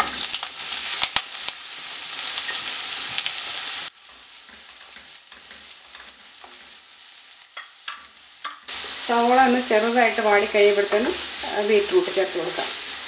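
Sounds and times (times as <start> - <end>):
onion sizzling in hot oil: 0.0 - 13.0.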